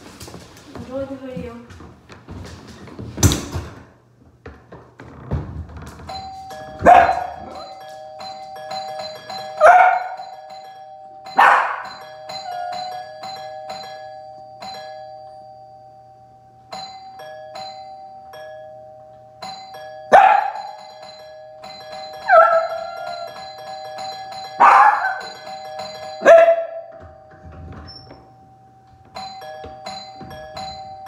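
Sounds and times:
electronic doorbell chime tune: 0:05.9 - 0:31.0
dog barking loudly: 0:06.8 - 0:07.4, 0:11.4 - 0:11.9, 0:24.6 - 0:25.3.

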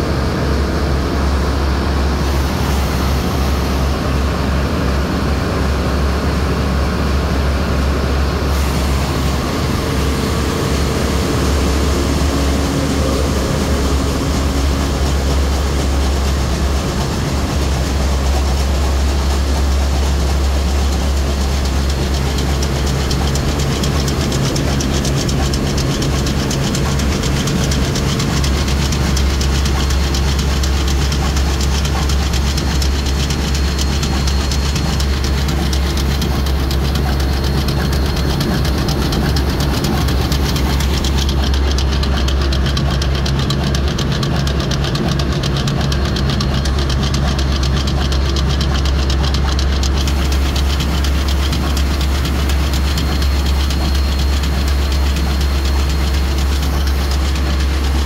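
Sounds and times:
deep constant hum: 0:00.0 - 0:58.0
engine room machinery din: 0:00.0 - 0:58.0
steady tones: 0:08.3 - 0:42.4.

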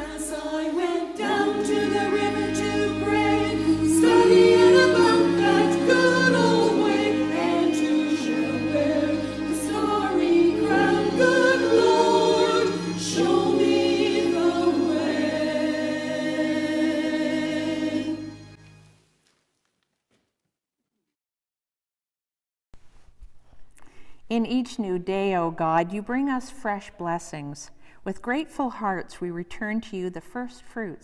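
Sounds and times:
choir singing sacred piece: 0:00.0 - 0:18.6.

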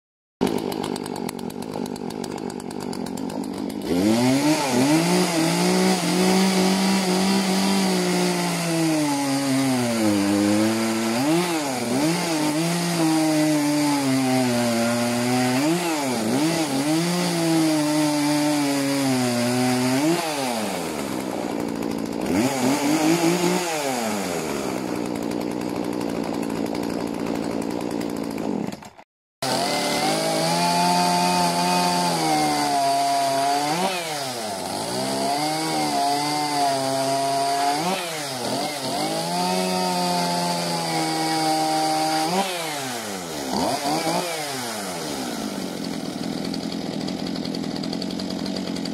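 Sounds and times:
chainsaw cutting log: 0:00.4 - 0:48.9.

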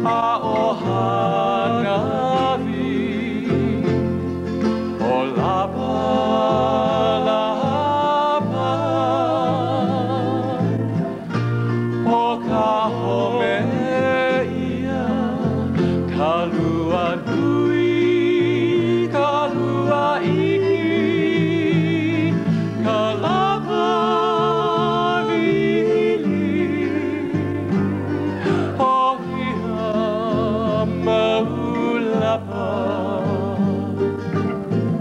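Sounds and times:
instrumental accompaniment: 0:00.0 - 0:35.0
person singing with vibrato: 0:00.0 - 0:35.0.

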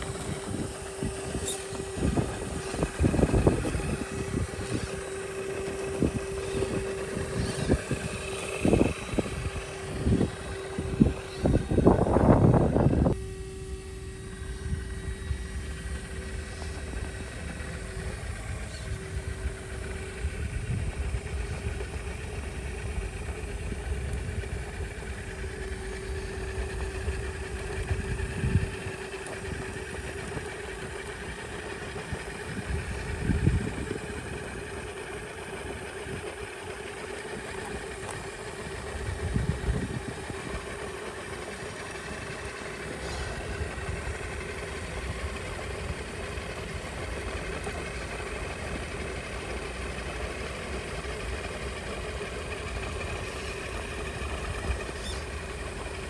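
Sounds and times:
toy car electric motor whining: 0:00.0 - 0:19.9.

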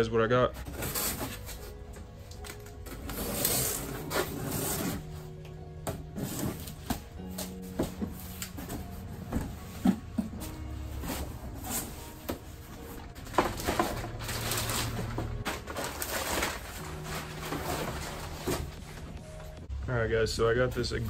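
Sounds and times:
plastic crinkling and rustling: 0:11.2 - 0:19.2.

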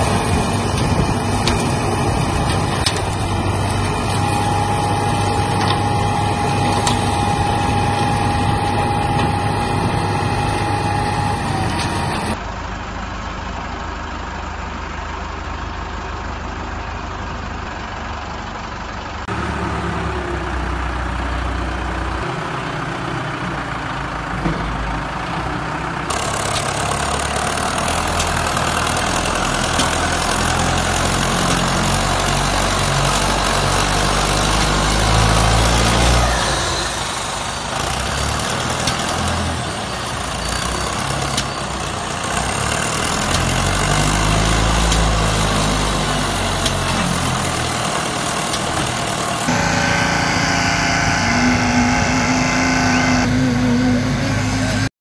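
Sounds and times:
concrete mixer engine revving: 0:00.0 - 0:12.4, 0:25.1 - 0:54.9.

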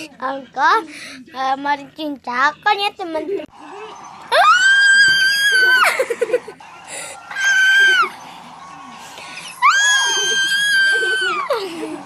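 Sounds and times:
girl screaming: 0:09.6 - 0:11.6.

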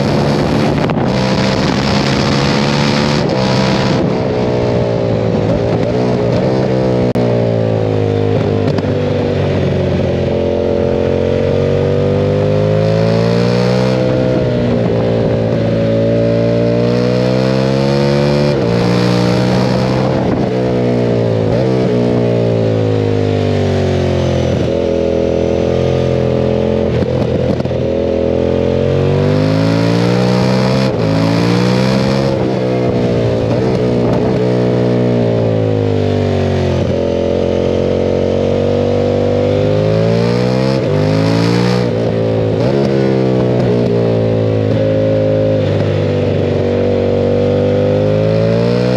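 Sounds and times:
wind on microphone: 0:00.0 - 0:07.7, 0:18.4 - 0:22.8, 0:29.1 - 0:35.9
motorcycle engine revving: 0:00.0 - 0:48.9.

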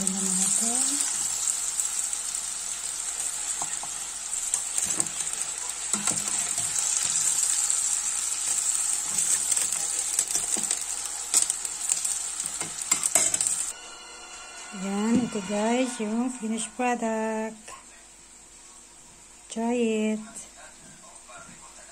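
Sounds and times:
chicken deep-frying in hot oil: 0:00.0 - 0:13.8.

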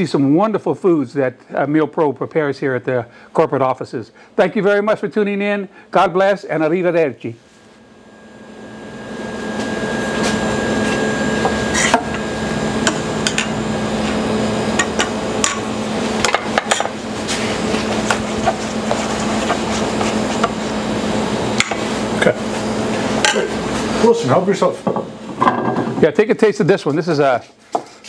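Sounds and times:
background hiss and hum: 0:00.0 - 0:28.0
metal utensil scraping in steel bowls: 0:11.7 - 0:12.1.

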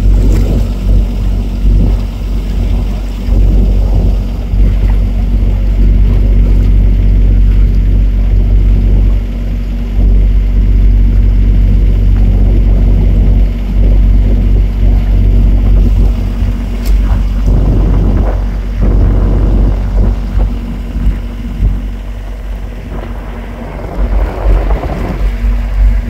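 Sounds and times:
motorboat engine humming: 0:00.0 - 0:26.0
rushing water: 0:00.0 - 0:26.0
wind: 0:00.0 - 0:26.0.

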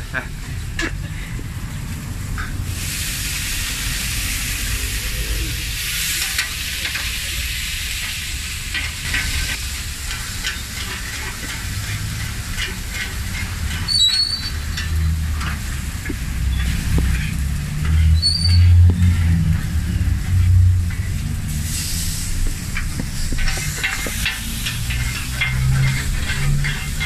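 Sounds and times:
low rumble: 0:01.1 - 0:06.4, 0:14.6 - 0:27.0
meat sizzling on griddle: 0:01.6 - 0:27.0
metal spatula scraping griddle: 0:07.9 - 0:27.0.

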